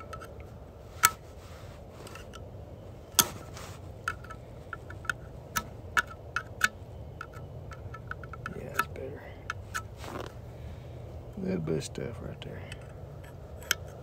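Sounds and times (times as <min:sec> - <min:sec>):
faint low hum: 0:00.0 - 0:14.0.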